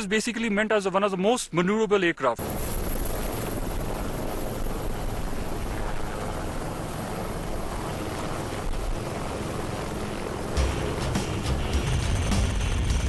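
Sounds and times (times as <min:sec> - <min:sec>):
helicopter rotor and turbine: 0:02.4 - 0:13.0.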